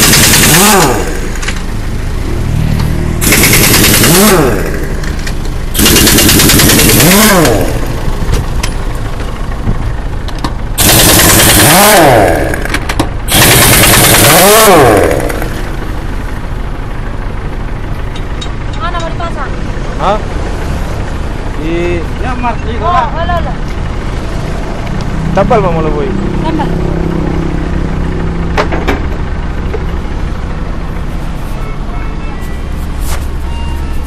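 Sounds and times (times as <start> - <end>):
pneumatic impact wrench rattling: 0.0 - 1.7, 3.2 - 9.0, 10.3 - 15.7.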